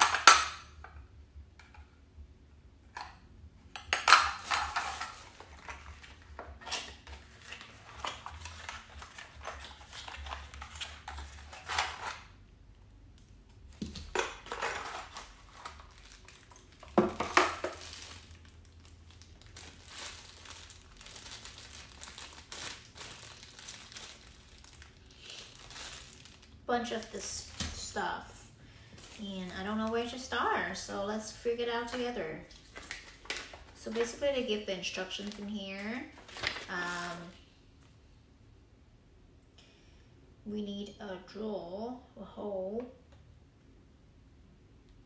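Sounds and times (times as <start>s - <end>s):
small metal parts clinking: 3.8s - 6.8s, 13.8s - 18.3s, 23.0s - 26.5s
handling of packaging: 4.2s - 12.4s, 13.7s - 27.8s, 28.8s - 30.8s, 31.9s - 37.5s.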